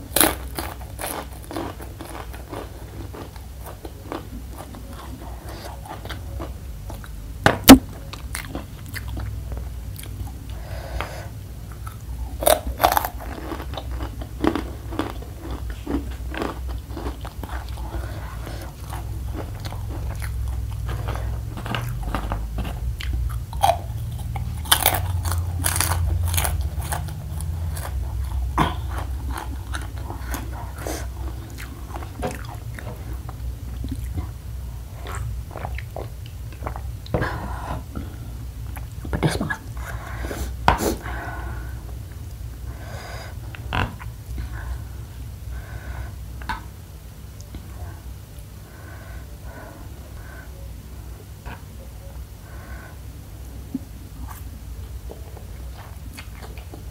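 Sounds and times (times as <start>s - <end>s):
crunchy snack chewing: 0.1s - 7.1s, 11.7s - 34.2s.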